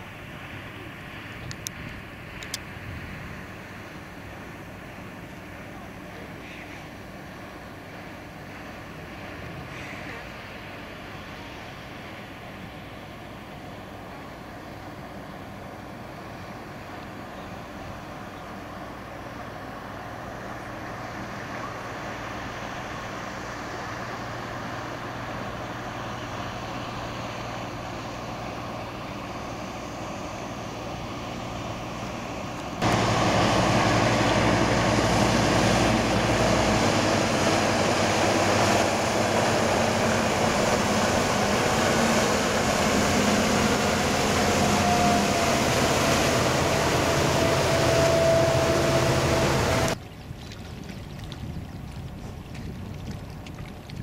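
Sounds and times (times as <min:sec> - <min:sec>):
boat engine droning: 0:00.0 - 0:50.0
high engine whine: 0:00.0 - 0:50.0
wake rushing through water: 0:19.9 - 0:54.0.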